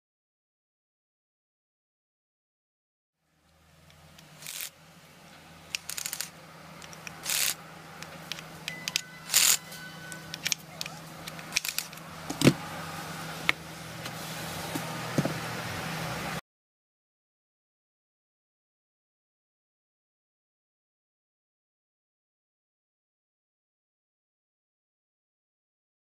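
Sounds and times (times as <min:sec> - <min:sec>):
plastic housing clicks and rattles: 0:04.2 - 0:04.7, 0:05.7 - 0:09.6, 0:10.2 - 0:12.5
cordless drill unscrewing screws: 0:04.4 - 0:04.7, 0:05.7 - 0:07.6, 0:08.3 - 0:09.6, 0:10.3 - 0:12.0
loose screws rattling: 0:04.4 - 0:04.7, 0:05.7 - 0:09.6, 0:10.3 - 0:12.0.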